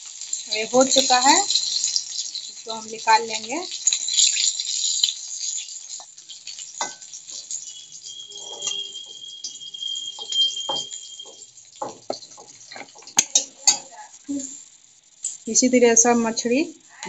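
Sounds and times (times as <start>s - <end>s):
oil sizzling: 0.0s - 17.0s
metal spatula scraping a pan: 0.1s - 14.2s
sharp metal clinks: 0.2s - 14.6s
faint steady high tone: 6.8s - 14.6s.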